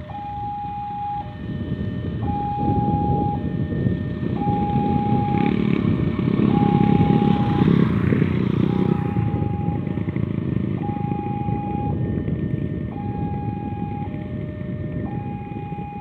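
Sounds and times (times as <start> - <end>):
level crossing alarm: 0.0 - 5.8, 6.4 - 16.0
motorcycle engines: 0.0 - 16.0.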